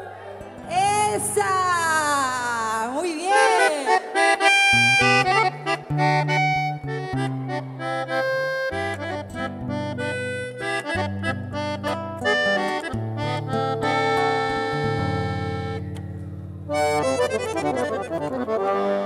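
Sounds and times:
button accordion playing: 3.1s - 16.0s, 16.7s - 19.0s.

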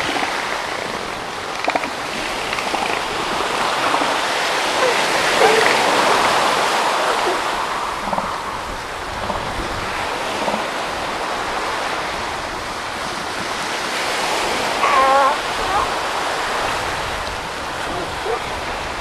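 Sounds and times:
surf washing on beach: 0.0s - 19.0s
elephant seal calls: 1.7s - 9.6s, 14.8s - 16.0s, 17.8s - 18.6s.

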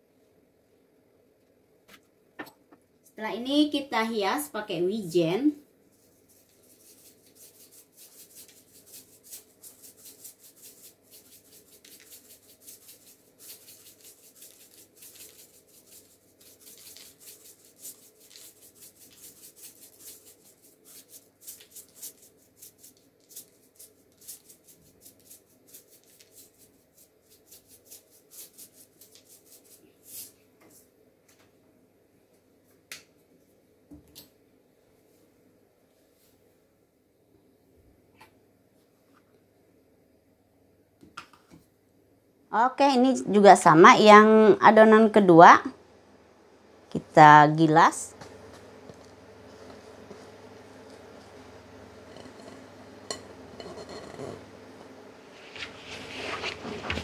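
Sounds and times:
seeds shaken from shaker jar: 5.9s - 30.4s.

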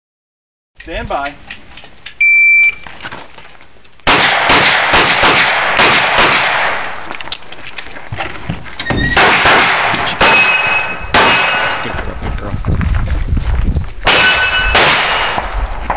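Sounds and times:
shot timer beep: 2.2s - 2.8s
rapid pistol shots: 4.1s - 6.9s, 9.2s - 11.8s, 14.0s - 15.5s
metal targets ringing: 10.0s - 12.0s, 14.0s - 15.6s.

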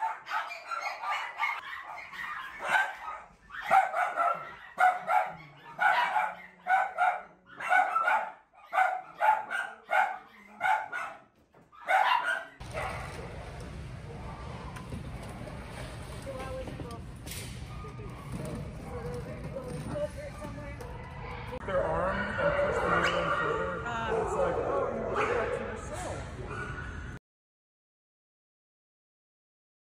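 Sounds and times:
dogs barking: 0.0s - 13.4s, 17.6s - 25.8s, 26.4s - 27.2s
outdoor background noise: 0.0s - 27.2s.

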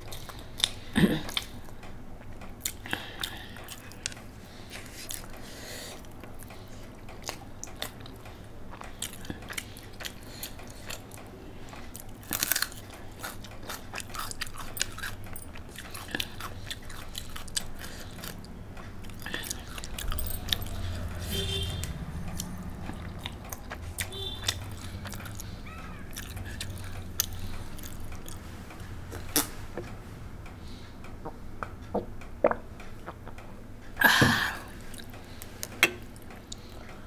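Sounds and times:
person chewing food: 0.0s - 30.0s, 30.6s - 37.0s
mouth clicks: 29.1s - 29.6s.

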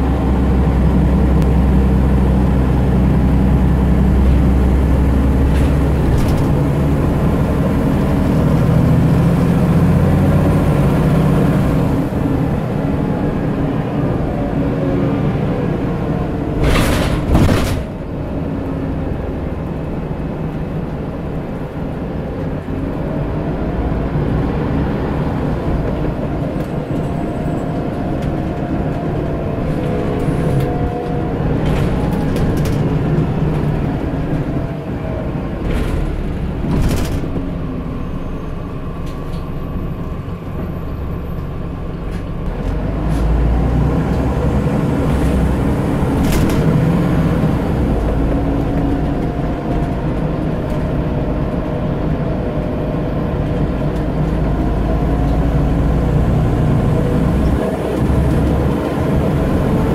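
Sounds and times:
bus body rattles: 0.0s - 14.3s, 15.5s - 23.4s, 24.6s - 59.9s
bus diesel engine accelerating: 0.0s - 59.9s.

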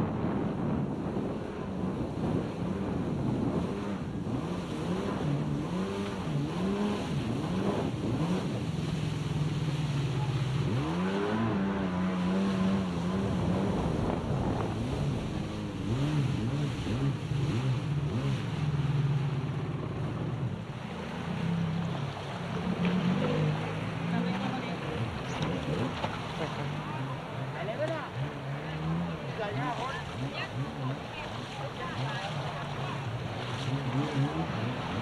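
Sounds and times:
jet ski engine revving: 0.0s - 35.0s
wind and water hiss: 0.0s - 35.0s.

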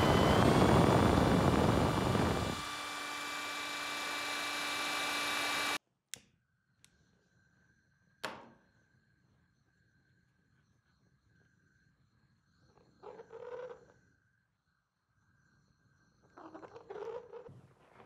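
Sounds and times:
electric drill mixing: 0.0s - 5.8s.

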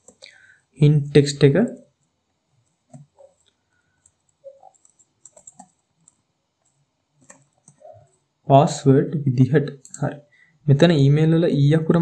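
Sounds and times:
keyboard typing: 0.0s - 0.4s, 1.6s - 8.2s.

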